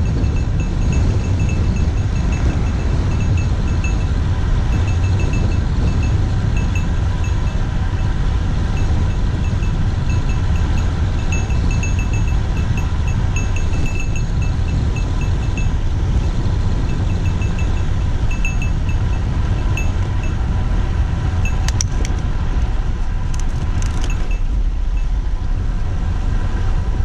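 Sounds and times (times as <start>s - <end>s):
metallic tinkling pings: 0.0s - 7.6s, 8.8s - 15.8s, 16.9s - 20.4s
wind buffeting microphone: 0.0s - 27.0s
sharp metallic clinks: 8.8s - 15.8s, 16.9s - 20.4s, 23.8s - 25.1s.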